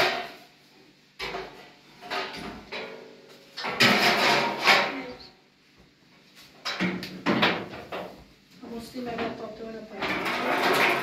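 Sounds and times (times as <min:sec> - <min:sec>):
hose and container scraping on tiles: 0:10.1 - 0:11.0.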